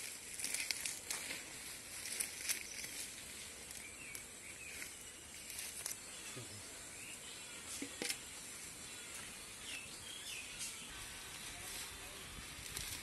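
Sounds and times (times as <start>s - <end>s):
hands rustling weeds and soil: 0.0s - 6.2s, 9.0s - 13.0s
birds chirping: 0.0s - 11.3s
steady high hiss: 0.0s - 13.0s.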